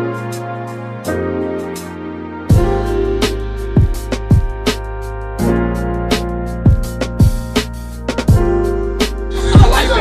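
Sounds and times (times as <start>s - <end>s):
instrumental beat with keyboard chords: 0.0s - 10.0s.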